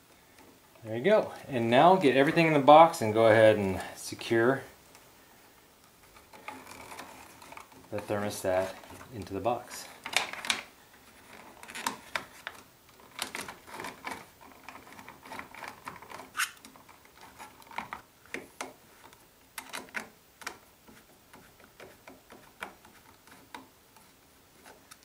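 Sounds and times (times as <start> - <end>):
plastic clicks and rattles: 10.0 - 24.1
screwdriver driving screws: 13.1 - 17.3.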